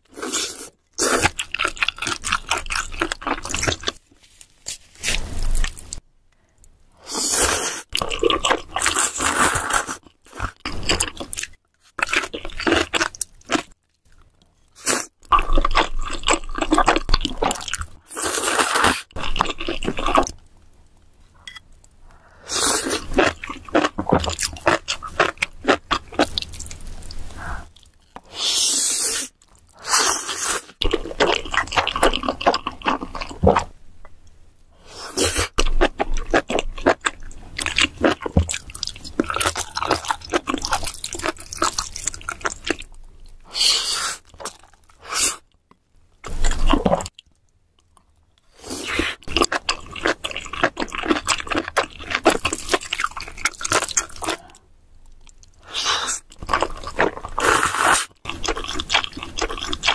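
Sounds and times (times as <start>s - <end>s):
wet chewing and sucking: 55.3s - 59.9s.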